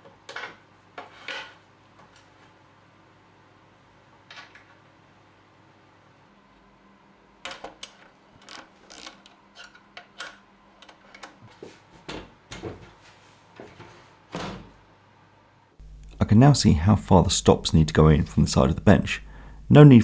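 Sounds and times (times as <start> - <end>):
socket ratchet clicking: 8.4 - 9.4.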